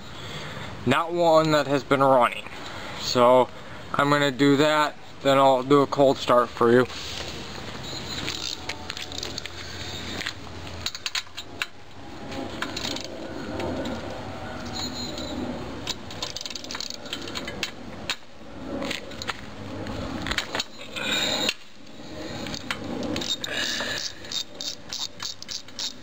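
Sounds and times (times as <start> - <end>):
wrench clicking and scraping metal: 8.0 - 11.8, 14.7 - 18.2, 22.3 - 26.0.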